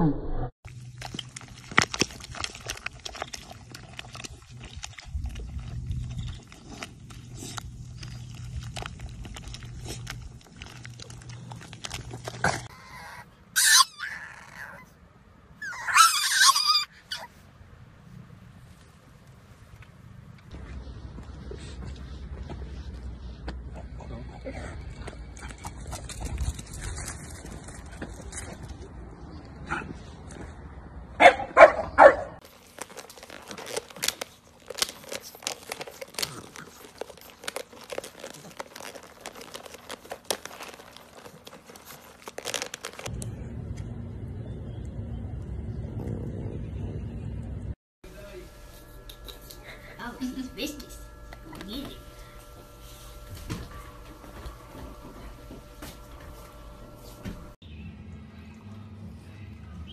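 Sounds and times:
puppy yelping: 0:12.6 - 0:15.0, 0:15.6 - 0:17.4
puppy howling: 0:12.7 - 0:14.9, 0:15.6 - 0:17.3
dog barking: 0:31.2 - 0:32.4, 0:53.6 - 0:54.8
puppy licking plastic lid: 0:32.4 - 0:43.1
low hum: 0:40.4 - 0:59.9.

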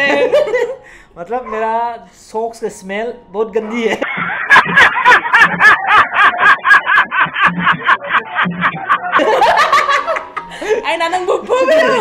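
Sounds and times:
man laughing hard: 0:04.0 - 0:10.7.

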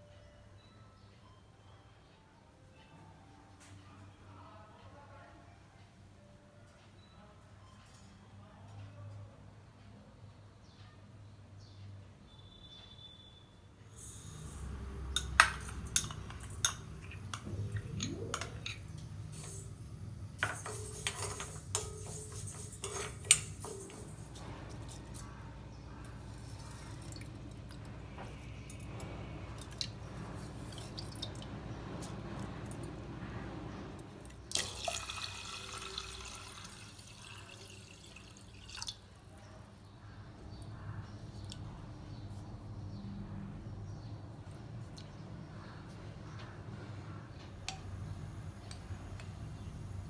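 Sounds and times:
low steady hum: 0:14.2 - 0:50.0
steel spoon scraping a pan: 0:18.0 - 0:25.1
water pouring into metal pot: 0:34.5 - 0:39.1.

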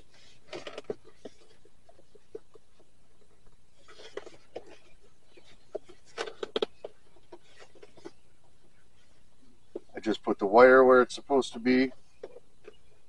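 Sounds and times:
plastic panel clicks and scrapes: 0:03.8 - 0:08.2.

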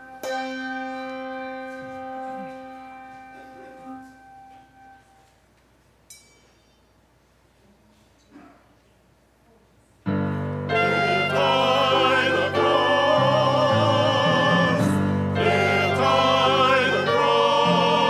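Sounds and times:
piano note ringing: 0:00.0 - 0:05.2.

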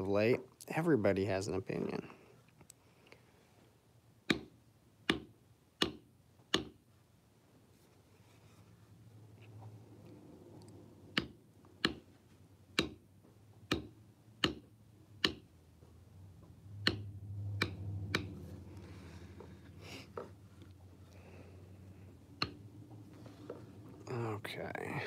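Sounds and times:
mallet tapping leather stamping tool: 0:04.3 - 0:06.8, 0:11.1 - 0:12.1, 0:12.7 - 0:15.5, 0:16.8 - 0:18.4.

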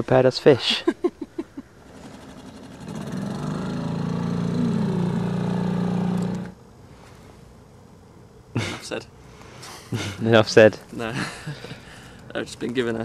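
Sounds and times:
outboard motor humming: 0:01.8 - 0:06.6.

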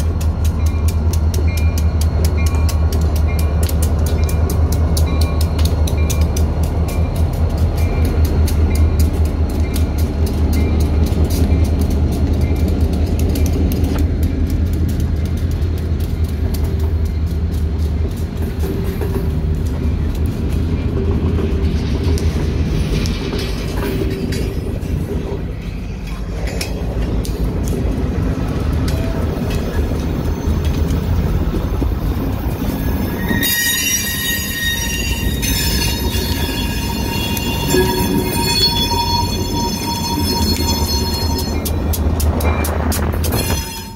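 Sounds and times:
diesel locomotive engine rumble: 0:00.0 - 0:43.9
freight cars wheels clicking on rails: 0:00.0 - 0:43.9
metal wheel squeal: 0:32.6 - 0:41.7, 0:43.3 - 0:43.9.

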